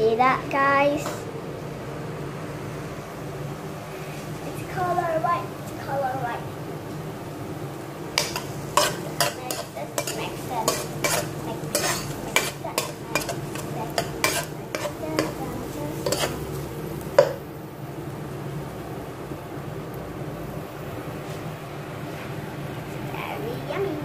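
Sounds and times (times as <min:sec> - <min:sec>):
frying sizzle: 0:00.0 - 0:24.0
steady low hum: 0:00.0 - 0:24.0
utensil scraping a pot: 0:08.2 - 0:16.5.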